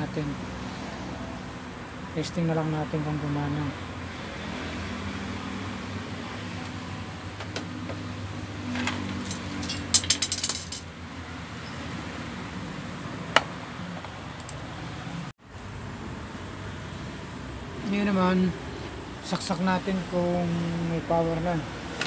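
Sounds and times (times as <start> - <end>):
small metal clinks rattling: 9.2 - 10.9.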